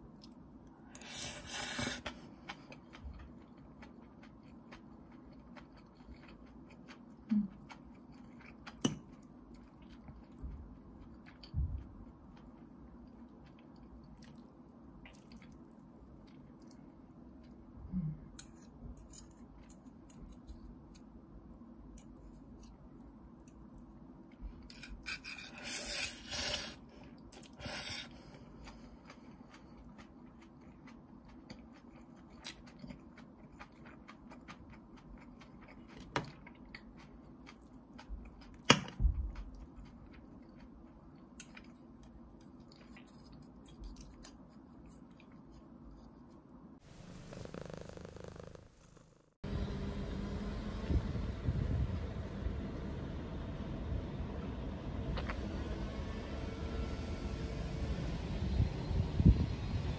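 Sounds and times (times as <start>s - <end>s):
low steady hum: 0.0s - 59.9s
quiet chewing: 0.1s - 21.1s, 26.4s - 49.2s.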